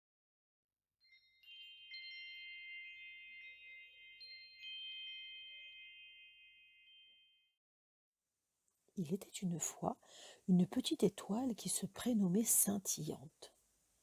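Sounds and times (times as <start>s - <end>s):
faint chimes ringing: 1.1s - 7.5s.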